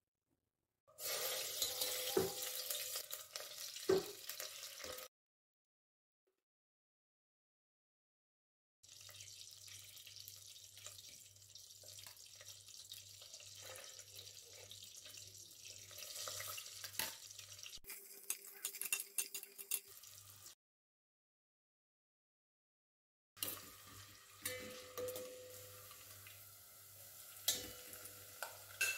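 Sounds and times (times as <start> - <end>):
oil sizzling in a pot: 0.9 - 5.1, 8.8 - 20.6, 23.4 - 28.9
onions sizzling with pops: 1.0 - 5.1, 8.9 - 18.9, 23.4 - 28.9.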